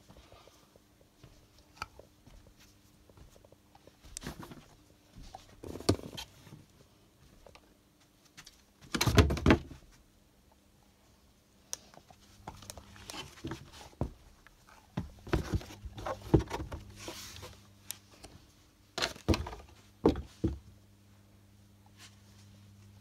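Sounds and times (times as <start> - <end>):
faint low hum: 0.0 - 23.0.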